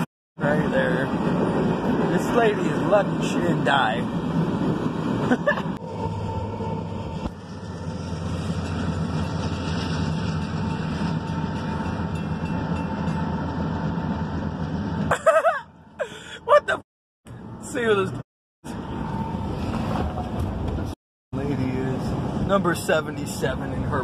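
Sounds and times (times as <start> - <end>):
railroad crossing bell ringing: 5.8 - 15.0.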